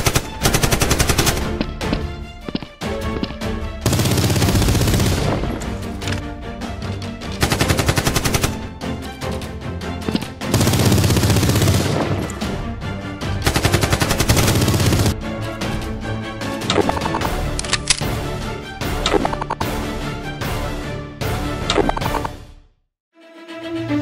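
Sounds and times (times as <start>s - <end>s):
background music: 0.0s - 24.0s
automatic gunfire sound effect: 3.9s - 5.6s, 10.5s - 12.4s, 13.5s - 15.2s.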